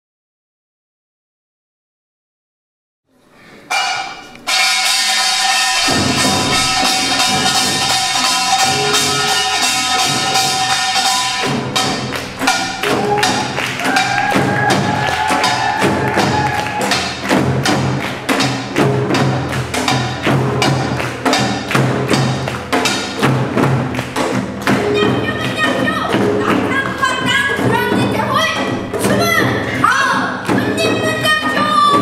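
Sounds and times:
held melodic tones: 3.3 - 31.7
drums: 3.6 - 32.0
small brass gong: 3.7 - 13.3
hand drums struck with sticks: 3.7 - 32.0.

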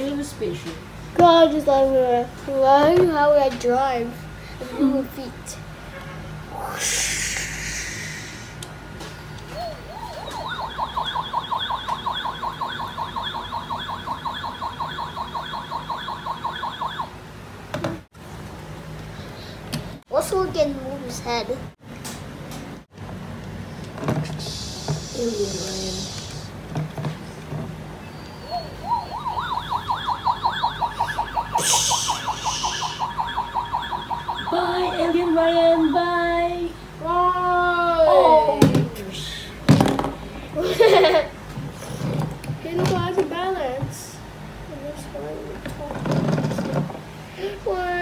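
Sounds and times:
short hiss: 6.6 - 8.6, 31.6 - 33.0
toy siren-like rising chirps: 9.5 - 17.2, 28.1 - 35.3
high warbling electronic trill: 9.6 - 17.1, 28.4 - 36.0.

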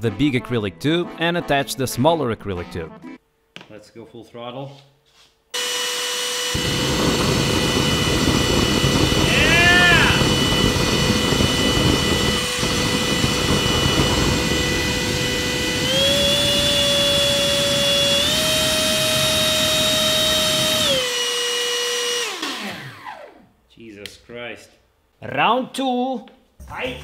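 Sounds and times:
fan motor whine: 5.6 - 21.1
rushing burner flame: 6.6 - 18.4.

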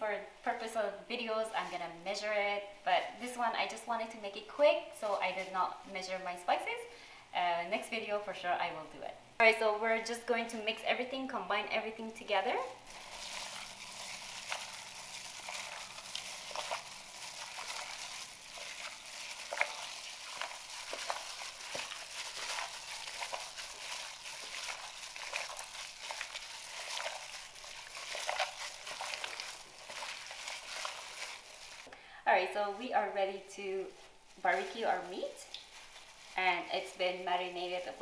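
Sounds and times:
plastic gloves crinkling: 0.6 - 6.8, 10.2 - 38.0
meat squelching in marinade: 12.8 - 31.9.

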